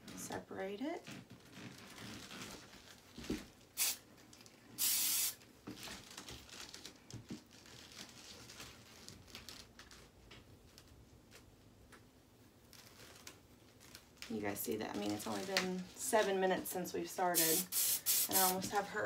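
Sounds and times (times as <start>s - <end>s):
hairspray hissing: 3.8s - 4.0s, 4.8s - 5.4s, 17.3s - 18.8s
hair being combed: 17.3s - 18.8s.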